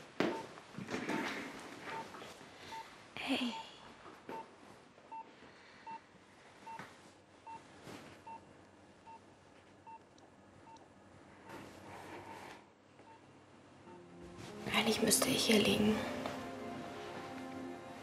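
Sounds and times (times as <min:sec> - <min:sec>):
patient monitor beeping: 0:00.2 - 0:04.5, 0:05.1 - 0:10.9, 0:13.0 - 0:14.3.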